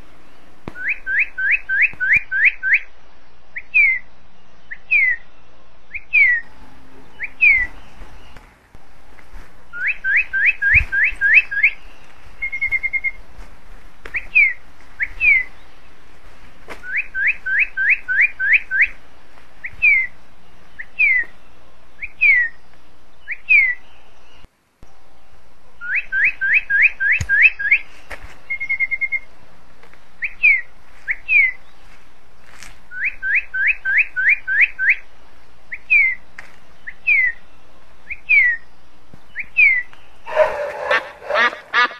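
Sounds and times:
high whistled chirps: 7.1s - 8.4s, 9.7s - 13.2s, 14.1s - 15.6s.

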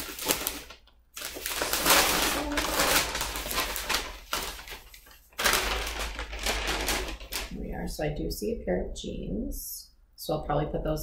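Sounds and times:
clothes and packaging rustling: 0.0s - 7.8s.

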